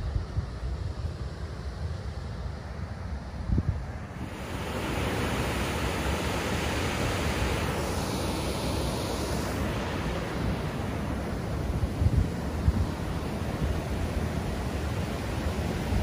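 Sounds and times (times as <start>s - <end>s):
wind rumbling on microphone: 3.2s - 16.0s
water rushing over weir: 4.1s - 16.0s.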